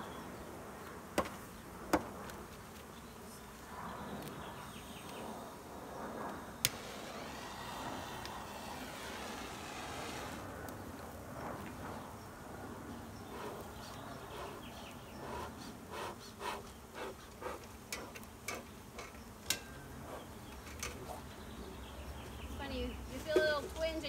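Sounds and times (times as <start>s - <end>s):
honeybees buzzing: 6.5s - 10.5s, 13.0s - 20.5s.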